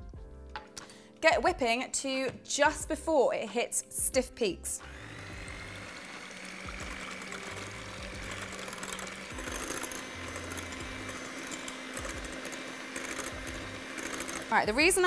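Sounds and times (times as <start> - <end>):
electric hand mixer whining: 4.8 - 15.0.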